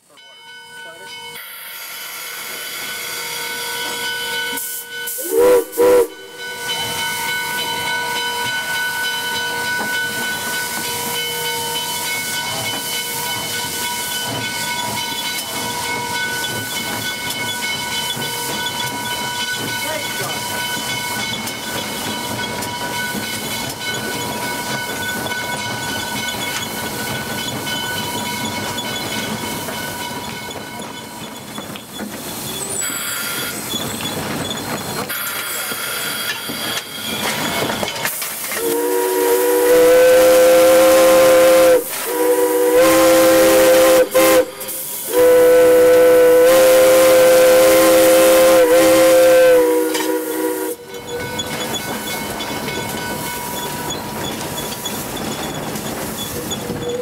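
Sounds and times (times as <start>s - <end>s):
steam locomotive whistle blasts: 1.4s - 7.6s, 38.6s - 51.2s
steam hissing: 1.4s - 57.0s.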